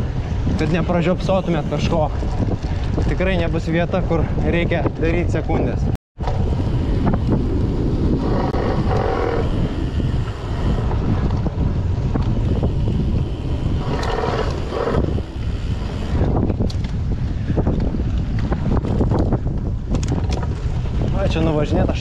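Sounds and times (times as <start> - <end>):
bike rattling: 0.0 - 22.0
tyres rumbling on dirt: 0.0 - 22.0
wind buffeting microphone: 0.0 - 22.0.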